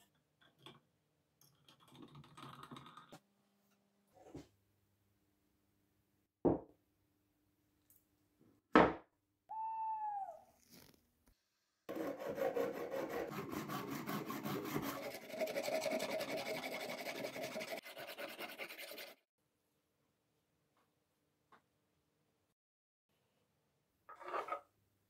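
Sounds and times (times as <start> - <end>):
rising and falling call: 9.5 - 10.6
metal file scraping wire: 11.9 - 19.2.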